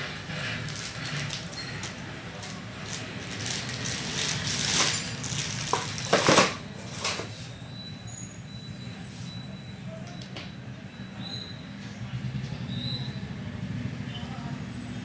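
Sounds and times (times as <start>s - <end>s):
handling rustling and clicks: 0.6s - 7.3s.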